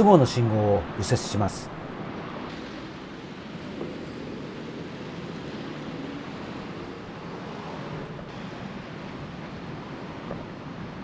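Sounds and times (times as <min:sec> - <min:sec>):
road traffic: 0:00.0 - 0:04.0.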